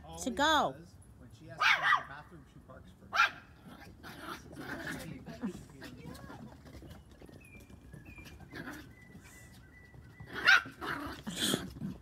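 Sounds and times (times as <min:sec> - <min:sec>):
dog barking: 0:01.6 - 0:02.2, 0:03.1 - 0:03.5, 0:10.4 - 0:10.7.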